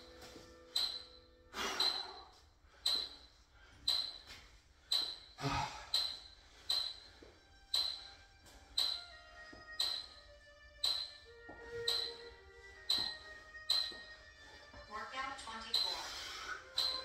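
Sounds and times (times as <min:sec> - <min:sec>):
high ping: 0:00.7 - 0:02.3, 0:09.8 - 0:10.2, 0:10.8 - 0:12.3, 0:12.9 - 0:14.2
heavy breathing: 0:01.5 - 0:07.5, 0:15.9 - 0:17.0.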